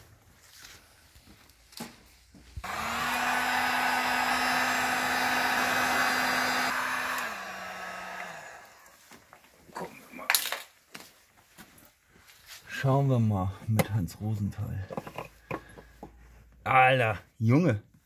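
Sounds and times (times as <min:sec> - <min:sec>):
heat gun fan humming: 0:02.6 - 0:08.9.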